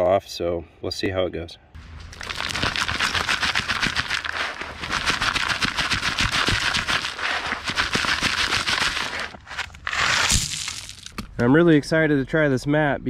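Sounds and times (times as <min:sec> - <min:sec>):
gravel rattling in a screen: 0:02.0 - 0:11.2.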